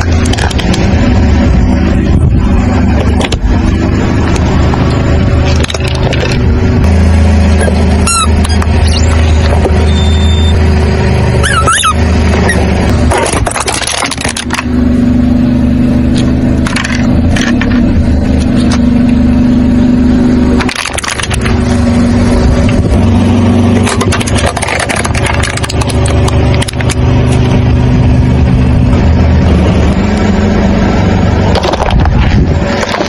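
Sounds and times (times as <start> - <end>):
car engine idling: 0.0 - 33.0
drink cans crushed under tyre: 13.1 - 14.7, 23.8 - 26.9.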